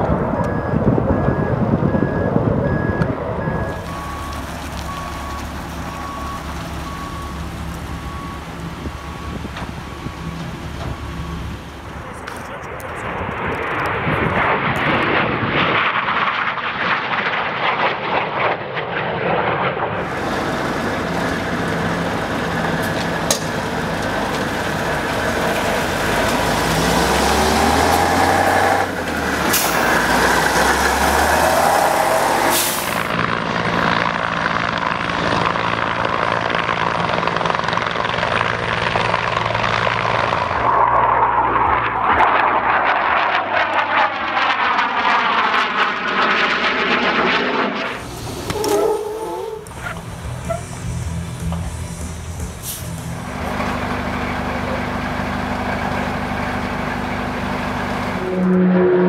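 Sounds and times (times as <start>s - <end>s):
truck diesel engine running: 0.0s - 13.8s, 20.0s - 42.1s, 47.9s - 59.0s
jet engines passing overhead: 0.0s - 59.0s.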